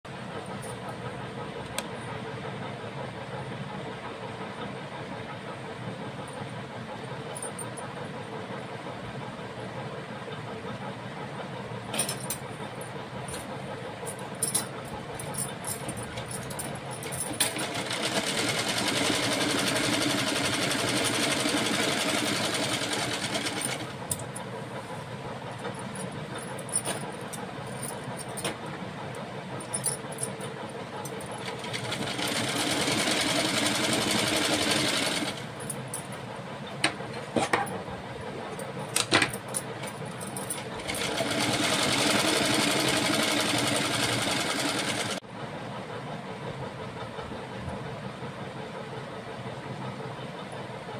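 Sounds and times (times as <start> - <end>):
sewing machine stitching: 17.3 - 24.0, 31.4 - 35.5, 40.6 - 45.2.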